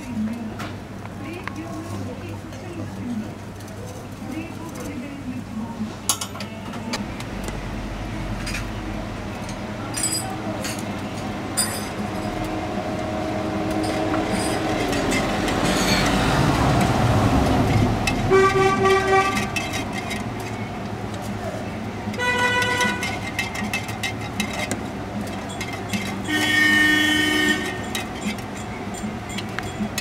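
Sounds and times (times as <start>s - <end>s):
vehicle engine running: 7.0s - 30.0s
car horn: 18.2s - 19.7s, 22.2s - 23.2s, 26.2s - 28.0s.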